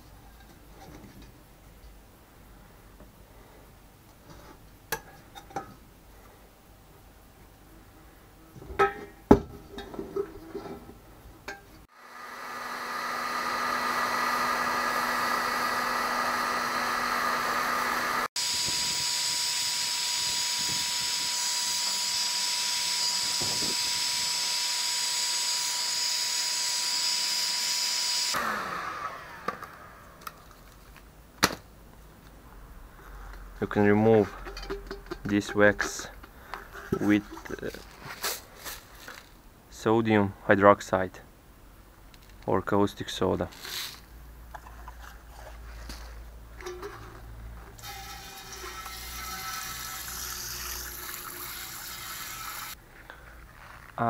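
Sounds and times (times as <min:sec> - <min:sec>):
heat gun fan whining: 0:11.9 - 0:30.4.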